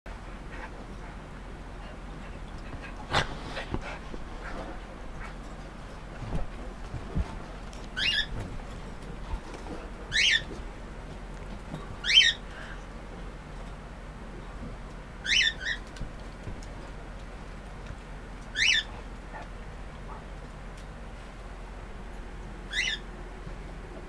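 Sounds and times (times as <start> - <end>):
puppy yelping: 10.1 - 10.5, 15.2 - 15.8, 18.6 - 18.9, 22.7 - 23.0.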